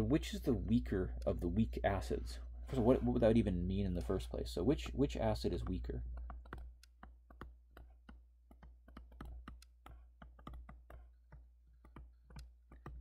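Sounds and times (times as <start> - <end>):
stylus tapping on tablet: 4.0 - 13.0.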